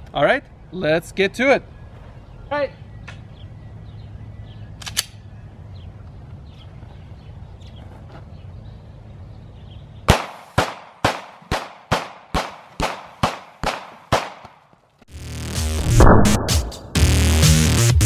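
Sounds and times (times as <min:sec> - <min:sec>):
sharp click: 0:04.8 - 0:05.2
pistol shots with echo: 0:10.1 - 0:14.6
steady low rumble: 0:15.8 - 0:17.4.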